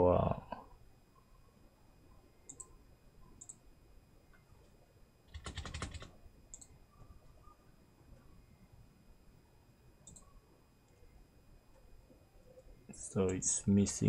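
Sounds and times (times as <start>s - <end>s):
typing on computer keyboard: 5.3s - 6.7s.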